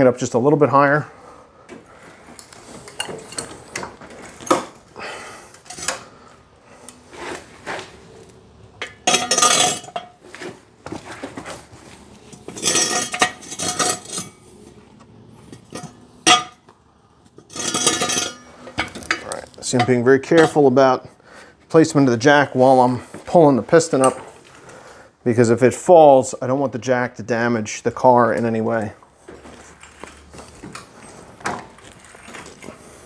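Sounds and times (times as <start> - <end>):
floor jack clinking and clanking: 8.8 - 11.6, 12.2 - 14.4, 17.4 - 20.7.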